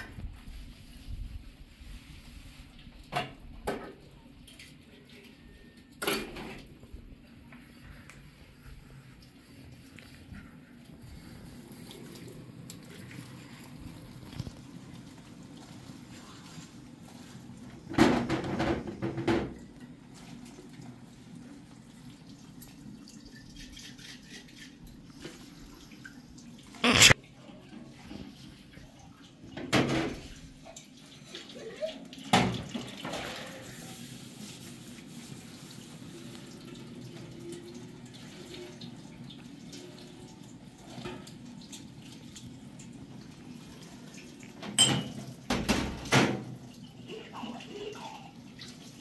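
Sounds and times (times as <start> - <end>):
tap water running and splashing: 7.5 - 49.0
dishes and metal tray clattering: 44.6 - 46.6.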